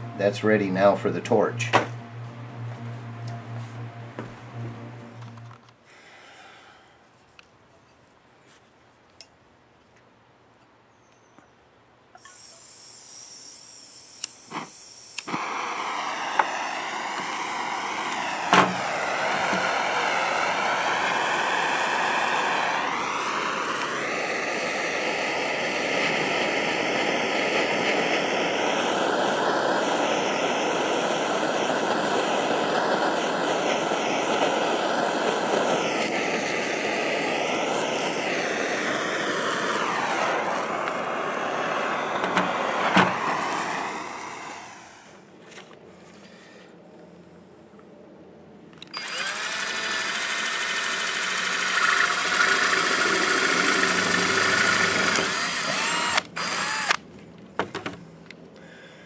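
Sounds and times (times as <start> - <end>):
propane torch hissing: 0.0 - 6.8, 12.2 - 45.3, 49.0 - 57.0
torch igniter clicks: 14.2 - 24.1, 42.1 - 44.4.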